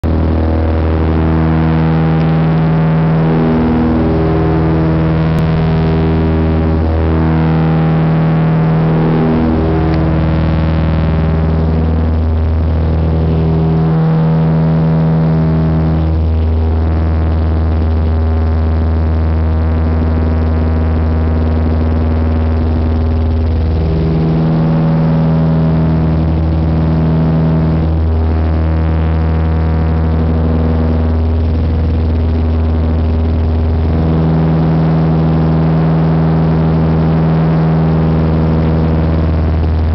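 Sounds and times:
propeller aircraft engines droning: 0:00.1 - 0:16.2, 0:22.5 - 0:28.5.

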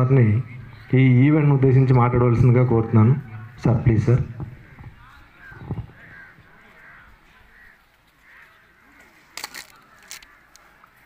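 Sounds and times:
crows cawing: 0:04.4 - 0:11.0.

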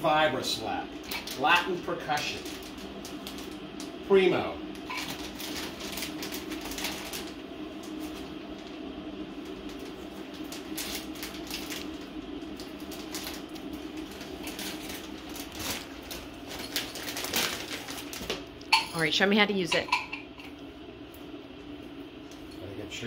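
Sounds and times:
plastic packaging crinkling: 0:01.0 - 0:03.9, 0:04.8 - 0:08.8, 0:09.4 - 0:18.7.

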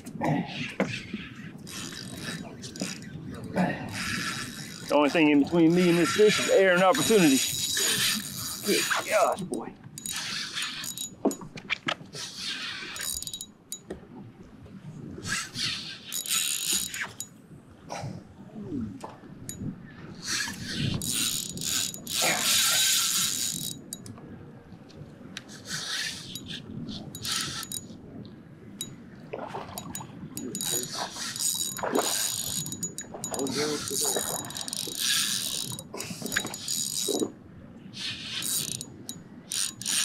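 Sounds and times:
fishing reel drag clicking: 0:01.2 - 0:03.1, 0:03.9 - 0:09.4, 0:10.0 - 0:11.2, 0:12.2 - 0:13.5, 0:15.2 - 0:17.3, 0:20.2 - 0:24.1, 0:25.4 - 0:27.9, 0:29.8 - 0:37.2, 0:38.0 - 0:40.0.

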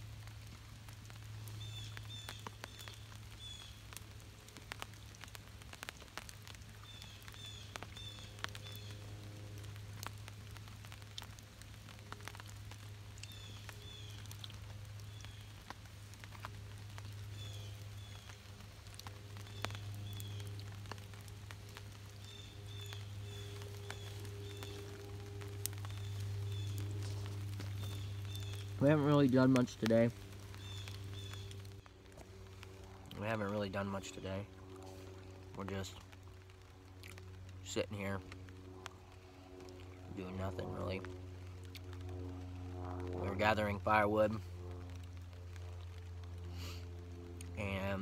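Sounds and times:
campfire crackling and popping: 0:00.0 - 0:48.0
light rain: 0:00.0 - 0:48.0
bird chirping: 0:22.1 - 0:31.7.

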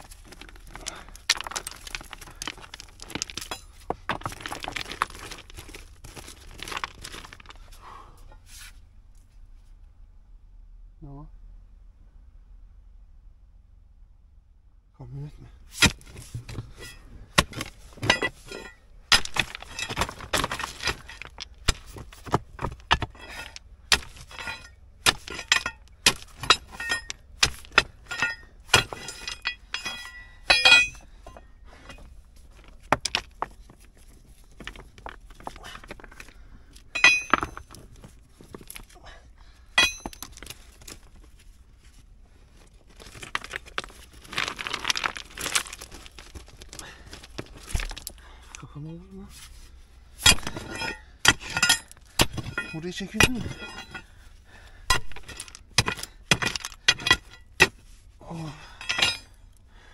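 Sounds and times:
rocks clinking and knocking: 0:00.0 - 0:08.4, 0:15.7 - 0:49.5, 0:50.1 - 0:59.7.

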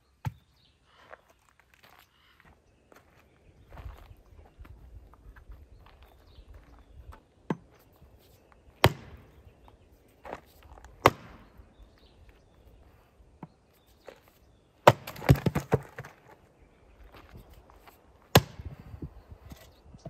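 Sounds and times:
axe chopping wood: 0:08.8 - 0:09.3, 0:10.9 - 0:11.5, 0:14.8 - 0:16.1, 0:18.3 - 0:18.8.

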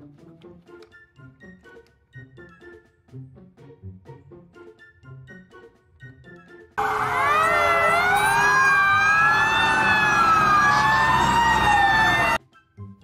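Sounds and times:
fire engine sirens wailing: 0:06.8 - 0:12.4.

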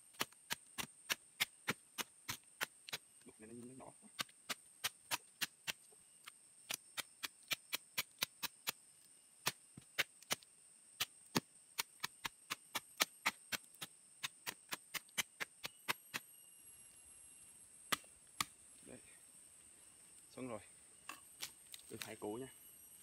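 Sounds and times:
machete chopping roots: 0:00.1 - 0:03.1, 0:11.0 - 0:16.2, 0:17.9 - 0:18.6.

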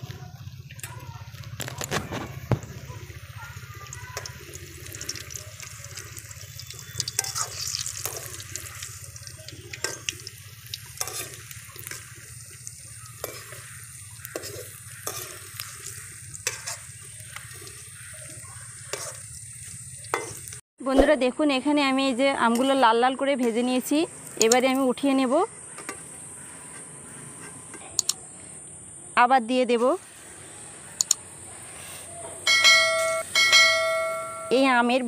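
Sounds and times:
oil sizzling hiss: 0:00.0 - 0:20.6, 0:22.6 - 0:27.4, 0:30.0 - 0:32.2
metal spoon clinking on pan: 0:06.6 - 0:09.0, 0:11.0 - 0:12.0.

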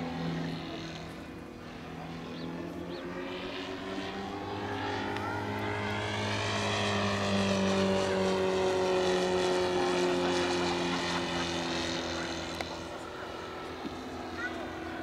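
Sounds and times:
model plane engine propeller drone: 0:00.0 - 0:15.0.

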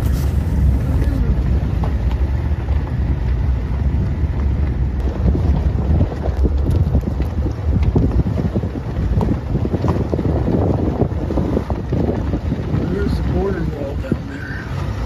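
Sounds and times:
car rumbling on road: 0:00.0 - 0:15.0
wind buffeting microphone: 0:00.0 - 0:15.0.

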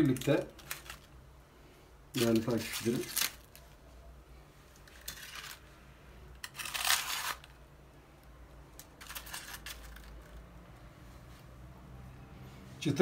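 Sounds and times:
tongs handling crispy pastries: 0:00.0 - 0:01.3, 0:02.2 - 0:03.7.

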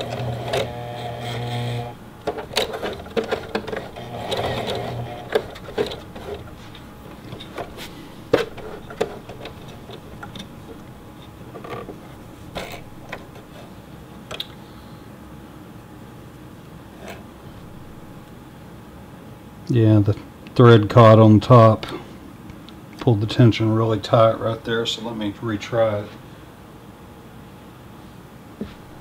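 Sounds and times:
sewing machine stitching: 0:00.0 - 0:07.4
clicks and knocks of handling: 0:02.2 - 0:13.7.

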